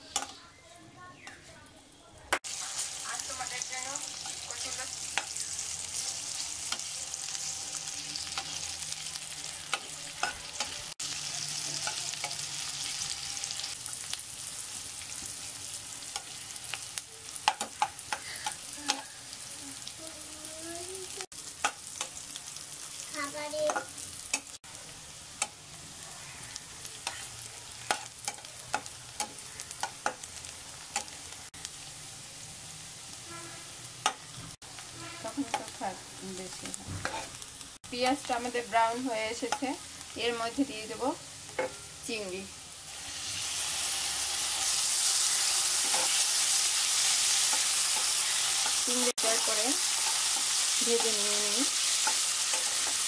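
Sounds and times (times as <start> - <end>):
onions sizzling in hot oil: 2.4 - 53.0
spatula scraping a metal pan: 37.0 - 37.4, 45.0 - 46.2.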